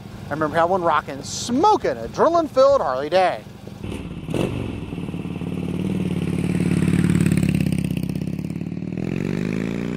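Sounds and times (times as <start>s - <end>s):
motorcycle engine running: 3.8s - 9.9s.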